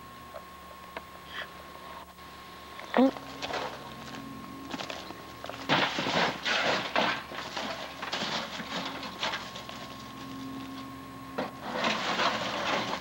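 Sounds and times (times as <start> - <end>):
footsteps crunching through debris: 3.2 - 10.8
rummaging among junk: 3.3 - 10.8, 11.4 - 13.0.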